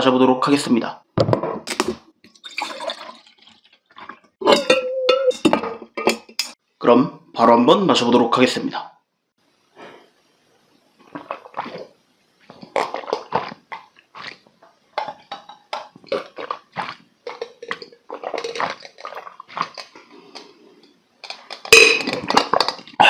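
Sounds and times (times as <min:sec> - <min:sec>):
man gulping wet swallows: 0:11.1 - 0:14.4, 0:16.0 - 0:20.5.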